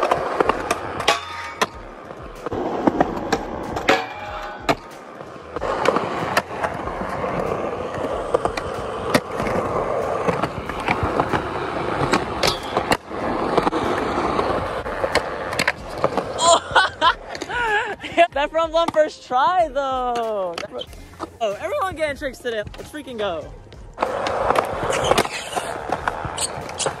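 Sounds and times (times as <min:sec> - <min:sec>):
skateboard popping and landing clacks: 0:00.0 - 0:16.4, 0:23.9 - 0:27.0
skateboard wheels rolling on concrete: 0:00.0 - 0:27.0.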